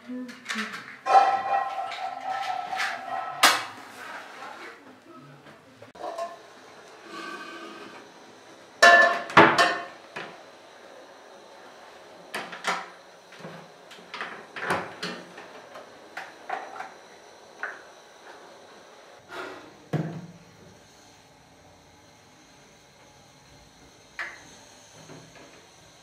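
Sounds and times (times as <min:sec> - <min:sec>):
cookware knocking and clunking: 0:08.8 - 0:09.9.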